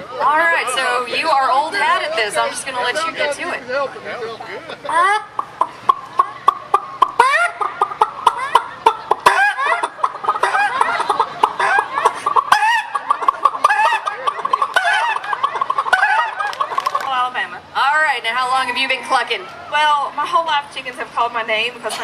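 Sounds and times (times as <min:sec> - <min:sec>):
man imitating chicken clucking: 0:04.9 - 0:16.5.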